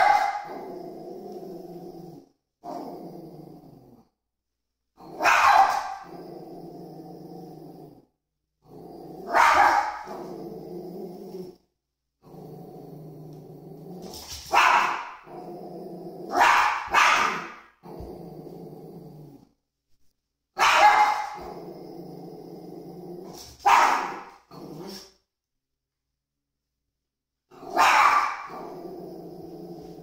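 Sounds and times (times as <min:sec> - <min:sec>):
small dog barking sharply: 0:00.0 - 0:00.5, 0:05.2 - 0:06.0, 0:14.5 - 0:15.2, 0:16.4 - 0:17.5, 0:20.6 - 0:21.4, 0:23.6 - 0:24.2, 0:27.8 - 0:28.5
small dog growling: 0:00.0 - 0:04.1, 0:05.0 - 0:11.6, 0:12.2 - 0:19.5, 0:21.2 - 0:25.2, 0:27.5 - 0:30.0.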